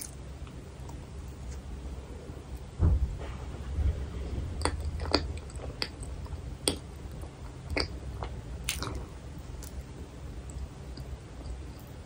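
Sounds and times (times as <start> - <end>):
chewing soft bun: 4.2 - 12.0.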